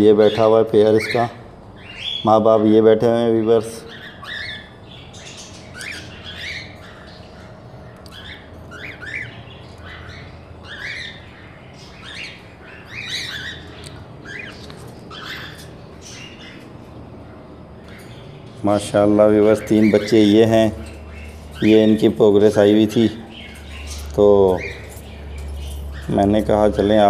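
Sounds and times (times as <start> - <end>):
cockatiels squawking: 0.2 - 2.4, 3.7 - 16.9, 17.7 - 27.0.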